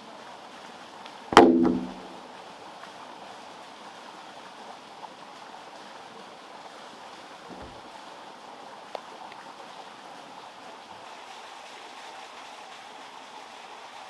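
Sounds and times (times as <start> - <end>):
ringing tail of a strike: 1.4 - 2.0.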